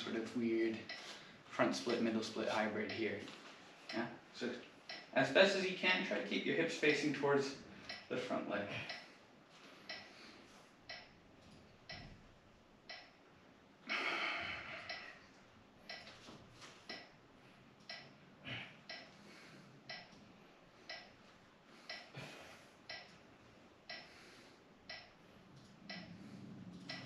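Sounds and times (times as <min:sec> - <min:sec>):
clock-like ticking: 0:00.7 - 0:01.1, 0:02.8 - 0:03.1, 0:04.9 - 0:05.2, 0:06.9 - 0:07.1, 0:07.8 - 0:09.1, 0:09.9 - 0:10.2, 0:10.9 - 0:11.2, 0:11.8 - 0:12.2, 0:12.9 - 0:13.2, 0:14.8 - 0:15.2, 0:15.9 - 0:16.2, 0:16.9 - 0:17.1, 0:17.8 - 0:18.2, 0:18.9 - 0:19.2, 0:19.9 - 0:20.2, 0:20.9 - 0:21.2, 0:21.8 - 0:22.2, 0:22.9 - 0:23.2, 0:23.9 - 0:24.2, 0:24.8 - 0:27.0.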